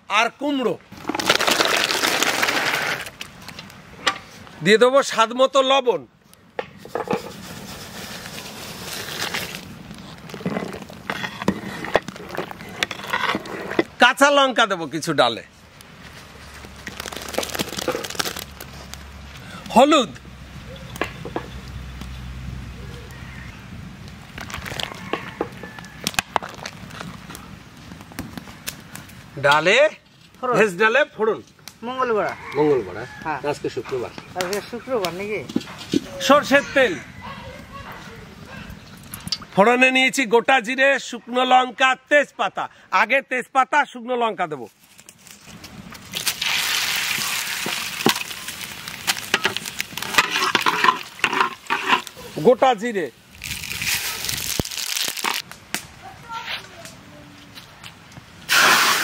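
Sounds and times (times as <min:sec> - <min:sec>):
pot boiling: 0:07.1 - 0:14.0, 0:45.9 - 0:55.5
spatula scraping a pan: 0:10.4 - 0:13.9, 0:49.3 - 0:52.2
crackles and sharp clicks: 0:24.0 - 0:29.7, 0:34.2 - 0:35.2, 0:47.6 - 0:52.2, 0:53.3 - 0:56.0
spices sizzling in hot oil: 0:46.1 - 0:55.4
ladle stirring pot: 0:49.2 - 0:52.2.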